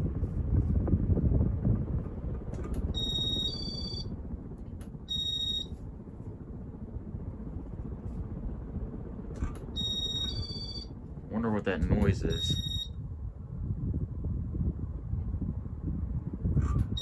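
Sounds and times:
ceiling fan low rumble: 0:00.0 - 0:17.0
high-pitched electronic beeps: 0:03.0 - 0:04.0, 0:05.1 - 0:05.7, 0:09.8 - 0:10.9, 0:12.3 - 0:12.9.

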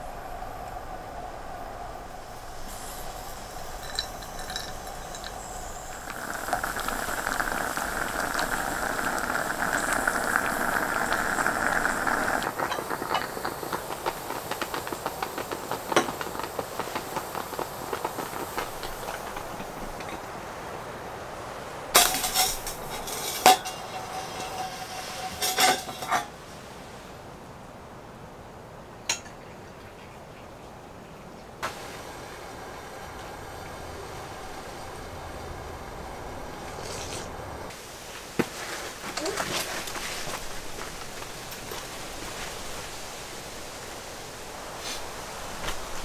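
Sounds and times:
moka pot gurgling and hissing: 0:02.0 - 0:26.3, 0:31.6 - 0:46.0
metal cup clinking: 0:02.7 - 0:13.3, 0:22.0 - 0:26.3.

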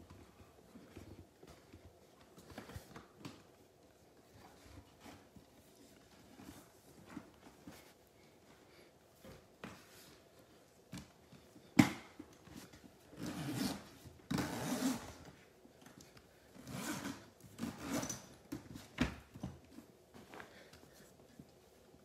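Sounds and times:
zipper running: 0:13.1 - 0:15.2.

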